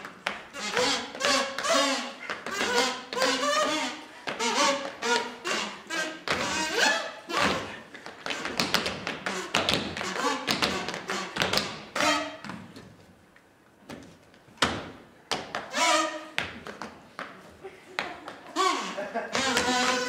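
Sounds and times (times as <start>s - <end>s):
tap shoes on stage floor: 0.0s - 5.7s, 7.4s - 12.9s, 16.4s - 18.5s.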